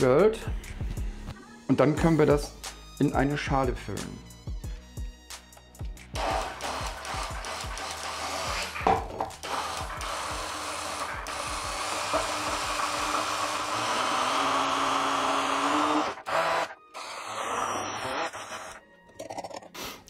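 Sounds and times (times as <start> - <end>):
stick blender whirring: 6.1 - 18.8.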